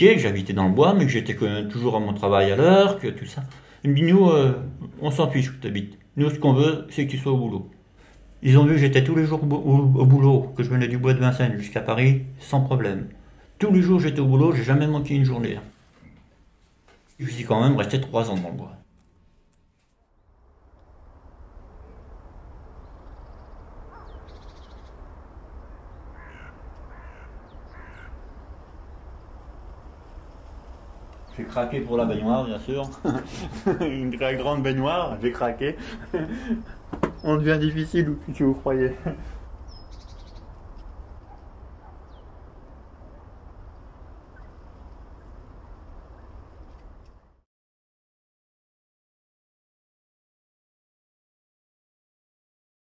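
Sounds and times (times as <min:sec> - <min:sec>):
woodland low rumble: 0:00.0 - 0:19.2, 0:20.1 - 0:47.4
faint bird calls: 0:21.7 - 0:29.5, 0:38.9 - 0:45.4
high bird call: 0:23.2 - 0:25.0, 0:25.6 - 0:28.4
crow cawing: 0:23.9 - 0:24.4, 0:26.1 - 0:28.2.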